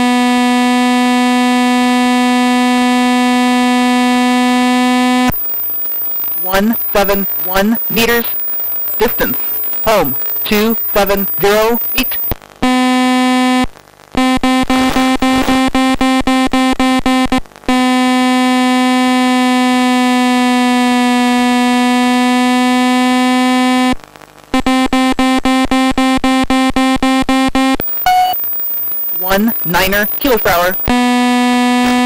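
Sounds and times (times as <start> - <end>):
electronic beeping tone: 5.3 - 12.4, 24.6 - 31.1.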